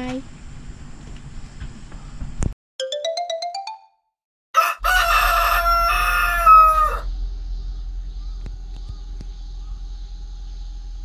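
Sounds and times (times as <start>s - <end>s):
rising chime notes: 2.8s - 4.1s
rooster crowing: 4.6s - 7.1s.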